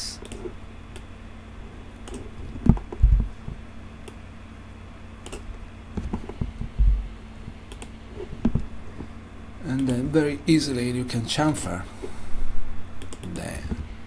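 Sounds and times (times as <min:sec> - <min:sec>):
faint electrical hum: 0:00.0 - 0:14.0
computer mouse and keyboard clicks: 0:00.2 - 0:01.1, 0:02.0 - 0:03.3, 0:05.2 - 0:06.5, 0:07.7 - 0:09.1, 0:13.0 - 0:13.4
dull low thumps: 0:02.5 - 0:03.6, 0:06.0 - 0:07.6.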